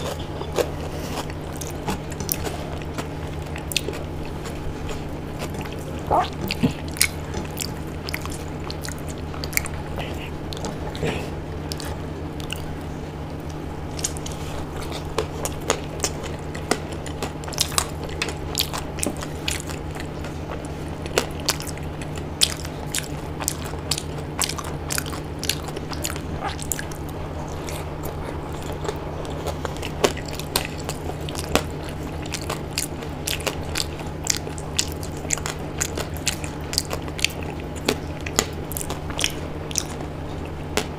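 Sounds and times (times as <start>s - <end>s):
person chewing food: 0.0s - 40.9s
steady low hum: 0.0s - 40.9s
crunching bites: 13.4s - 40.9s
wet mouth clicks: 21.1s - 40.9s.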